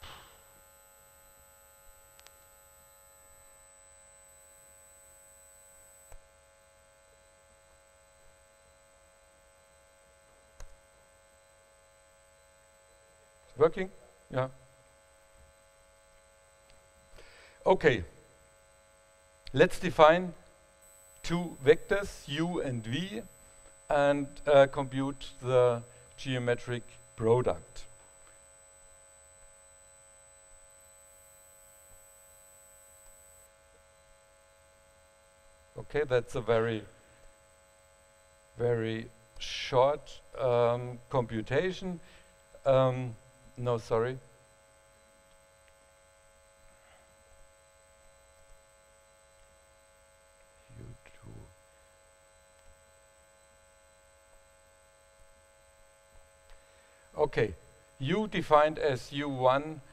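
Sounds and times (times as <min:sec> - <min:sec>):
electrical hum: 0:00.0 - 0:18.5, 0:19.3 - 0:37.5.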